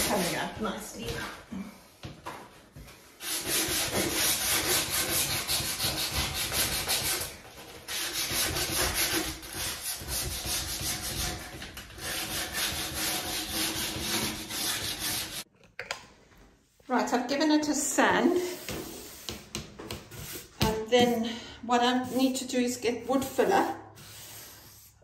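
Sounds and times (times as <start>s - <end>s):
sandpaper rubbing on wood: 3.2s - 7.3s, 7.9s - 15.4s.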